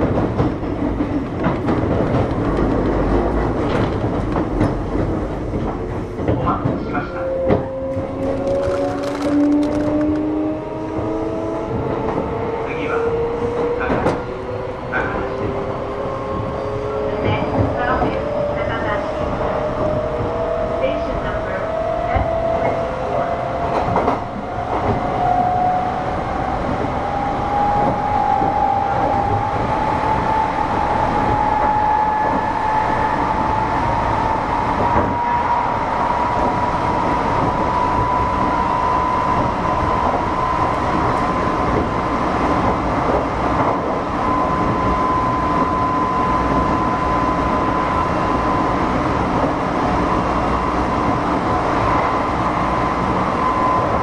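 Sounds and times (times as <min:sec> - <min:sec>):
electric train running: 0:08.0 - 0:11.4.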